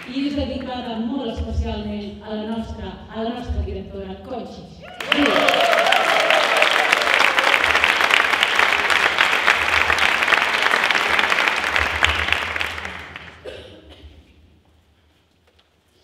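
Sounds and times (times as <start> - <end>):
people applauding: 0.0 - 0.4, 4.9 - 13.5.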